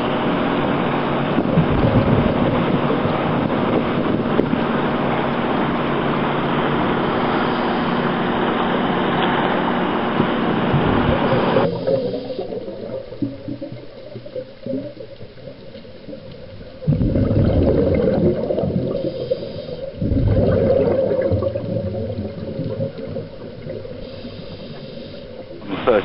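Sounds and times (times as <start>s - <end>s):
water rushing and splashing: 0.0s - 26.0s.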